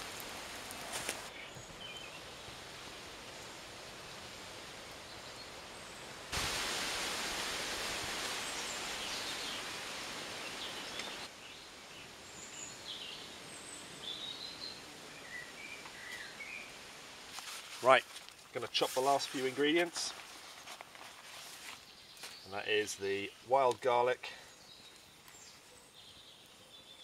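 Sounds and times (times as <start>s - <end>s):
steady outdoor hiss: 0.0s - 27.0s
small birds chirping: 0.1s - 2.6s, 8.4s - 16.8s, 17.4s - 27.0s
loud rushing hiss: 6.3s - 11.3s.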